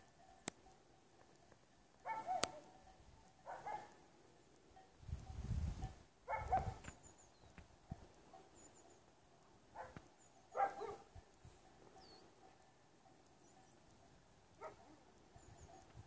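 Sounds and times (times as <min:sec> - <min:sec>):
dog barking: 0:02.0 - 0:02.7, 0:03.4 - 0:04.0, 0:06.3 - 0:06.8, 0:09.7 - 0:11.1, 0:14.6 - 0:15.0.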